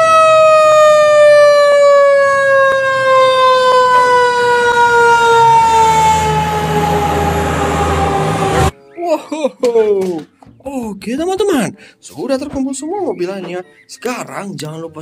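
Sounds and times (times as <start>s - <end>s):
truck engine rumble: 0.0s - 8.7s
fire truck siren wailing: 0.0s - 8.8s.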